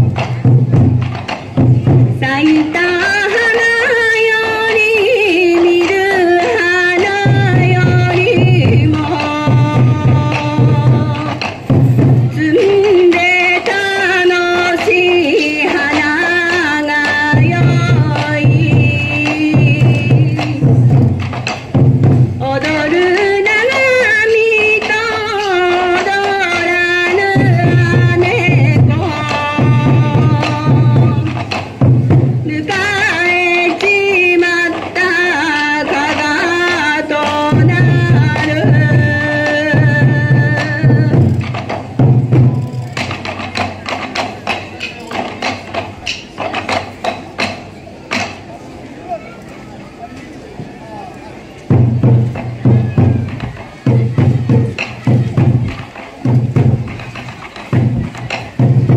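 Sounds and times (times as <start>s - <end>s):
taiko drumming: 0.0s - 48.4s, 51.7s - 58.9s
person singing folk melody: 22.4s - 31.5s.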